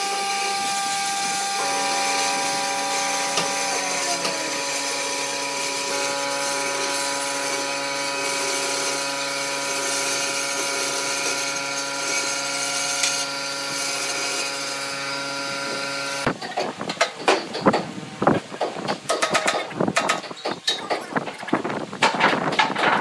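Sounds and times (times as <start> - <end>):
band saw cutting: 0.0 - 16.3
sharp knocks and clicks: 18.6 - 21.1.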